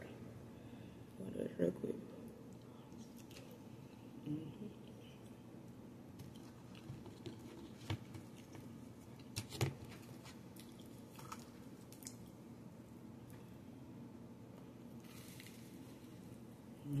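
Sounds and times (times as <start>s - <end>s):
person chewing wetly: 6.2s - 9.4s, 10.2s - 12.4s.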